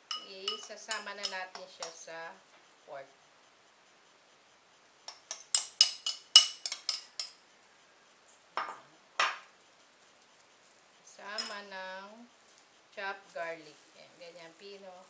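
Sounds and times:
spoon clinking on ceramic bowl: 0.0s - 2.0s, 5.1s - 7.4s, 11.3s - 11.6s
spoon scraping bowl: 0.0s - 2.0s, 11.1s - 11.8s.

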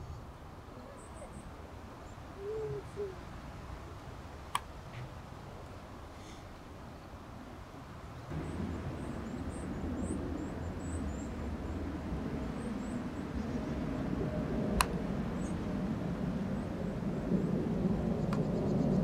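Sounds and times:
faint bird chirps: 0.0s - 3.3s
low outdoor rumble: 0.0s - 19.0s.

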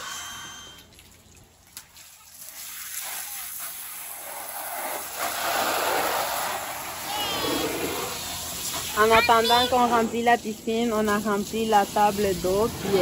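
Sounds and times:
hose spraying water: 1.8s - 13.0s.

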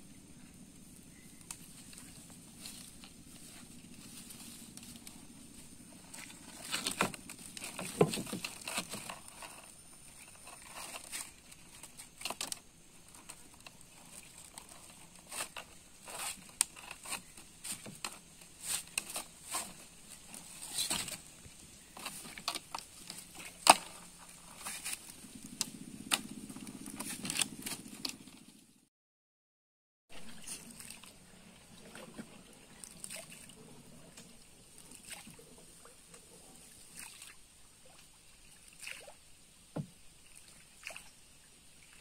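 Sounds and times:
fishing net rustling: 1.2s - 28.5s.

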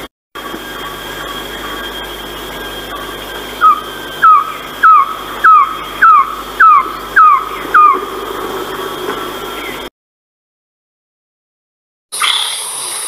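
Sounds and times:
bird calling descending notes: 0.7s - 9.9s.

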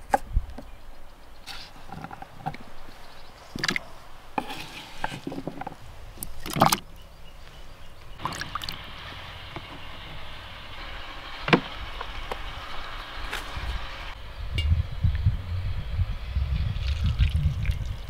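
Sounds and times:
low rumble: 8.2s - 18.0s.

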